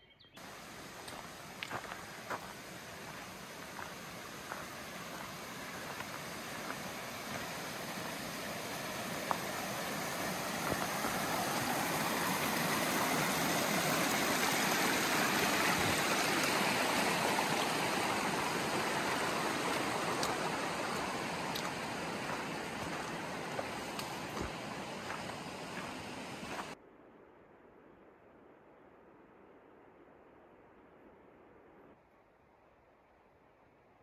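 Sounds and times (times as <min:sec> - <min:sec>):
creek water rushing: 0:00.4 - 0:26.8.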